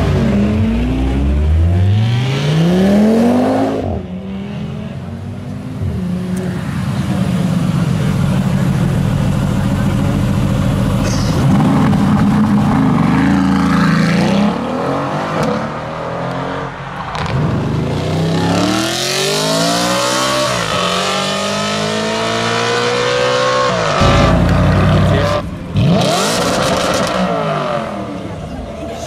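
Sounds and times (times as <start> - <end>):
car engine accelerating hard: 17.2 - 28.9
loud low rumble: 24.0 - 27.3.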